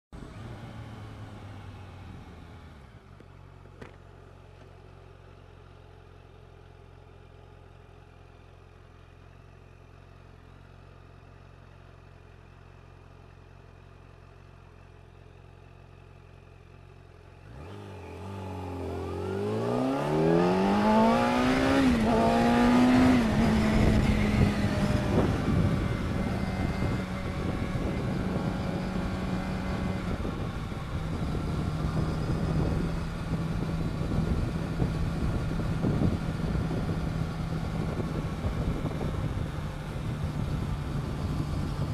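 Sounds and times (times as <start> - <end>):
motorcycle engine accelerating: 0.2 - 5.5, 16.8 - 41.9
wind rush on microphone: 20.1 - 41.9.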